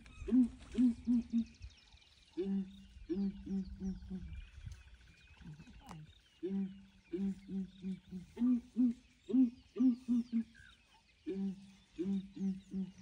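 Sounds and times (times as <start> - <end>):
birds hooting deeply: 0.0 - 13.0.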